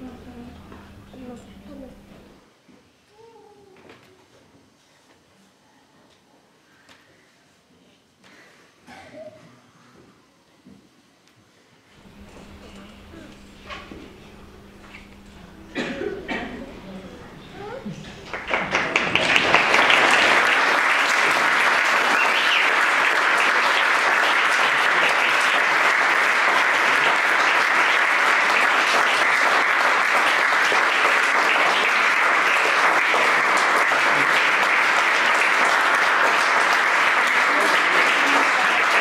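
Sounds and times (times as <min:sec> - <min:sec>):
audience applauding: 0:12.0 - 0:39.0.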